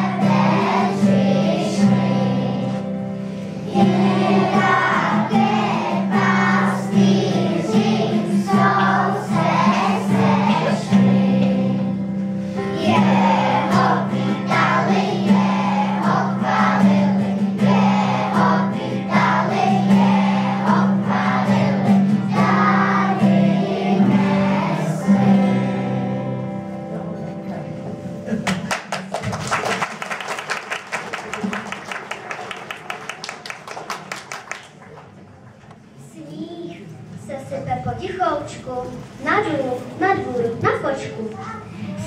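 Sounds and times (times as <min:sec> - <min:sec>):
children's choir singing: 0:00.0 - 0:26.7.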